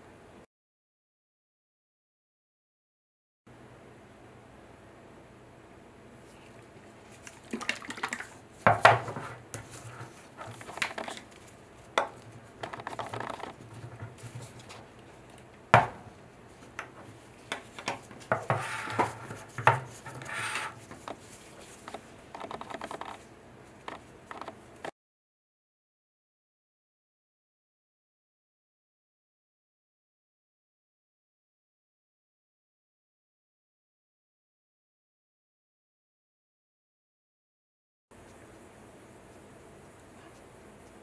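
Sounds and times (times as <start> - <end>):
polishing block scraping: 17.7 - 21.9.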